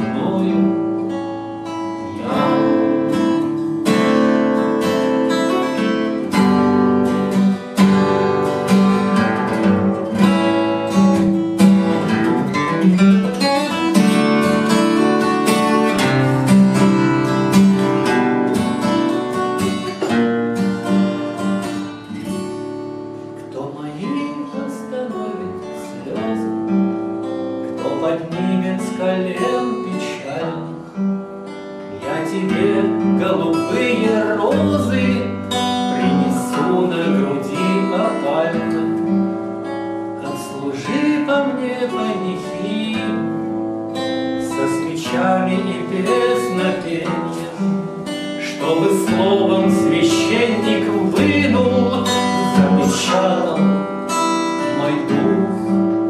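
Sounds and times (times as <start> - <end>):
acoustic guitar playing: 0.0 - 56.0.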